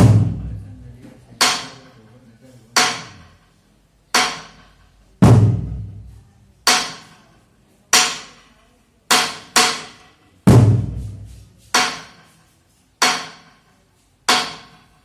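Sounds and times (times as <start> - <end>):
deep drum thud: 0.0 - 0.6, 5.2 - 6.1, 10.5 - 11.3
sharp percussion strikes: 0.0 - 0.6, 9.1 - 12.2.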